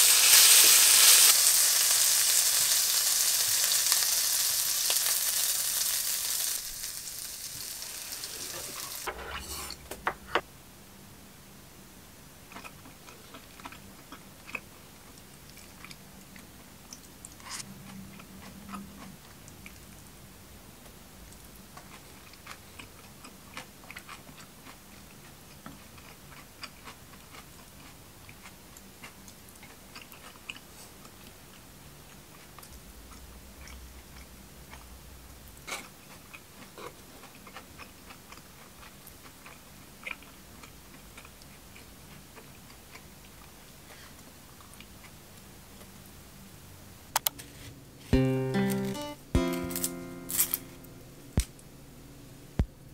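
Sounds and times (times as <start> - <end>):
chewing: 12.5 - 20.0, 21.8 - 34.9, 35.6 - 45.2
music: 48.1 - 51.4.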